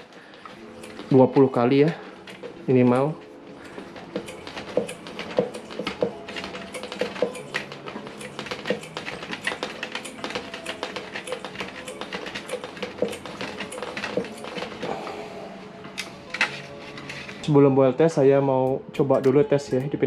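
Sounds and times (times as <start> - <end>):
hand pump clicking: 3.7 - 14.9.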